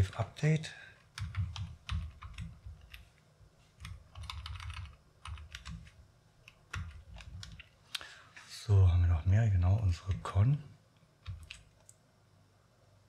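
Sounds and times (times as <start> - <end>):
typing on a keyboard: 1.1 - 3.1, 3.8 - 7.7, 11.2 - 12.0.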